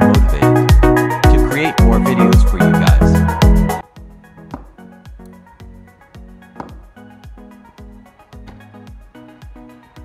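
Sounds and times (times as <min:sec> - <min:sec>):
held bass notes: 0:00.0 - 0:04.4.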